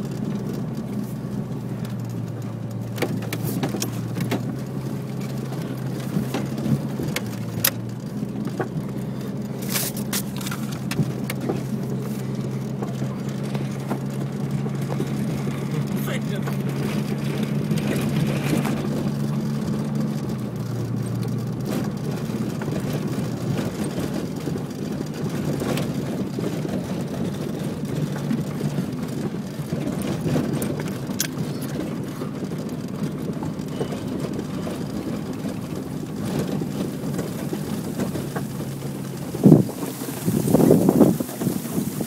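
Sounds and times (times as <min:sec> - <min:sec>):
car engine at low revs: 0:00.0 - 0:42.0
wind-blown sandstorm noise: 0:23.0 - 0:42.0.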